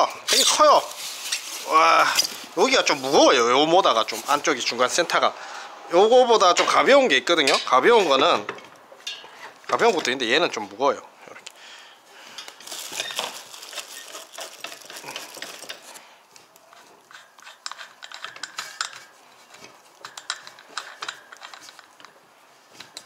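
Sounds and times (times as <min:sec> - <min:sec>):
rustling handling noise: 0:00.0 - 0:05.2, 0:12.2 - 0:23.0.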